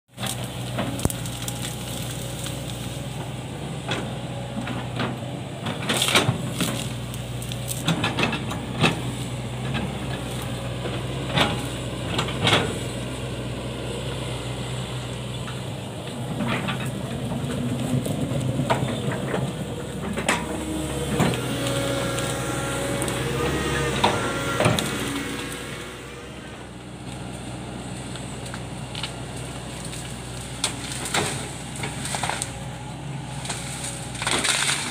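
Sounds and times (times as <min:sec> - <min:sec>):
excavator diesel engine running: 0:00.1 - 0:34.9
branches cracking and knocking: 0:00.2 - 0:13.0, 0:15.5 - 0:34.9.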